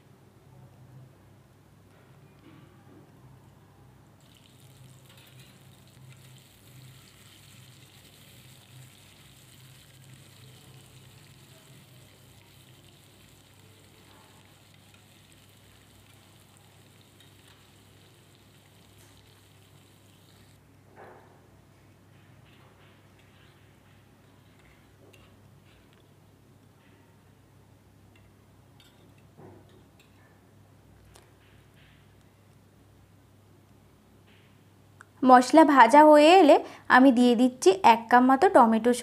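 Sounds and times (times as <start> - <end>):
paste sizzling in hot oil: 4.2 - 20.6
spatula scraping and stirring: 4.4 - 20.5.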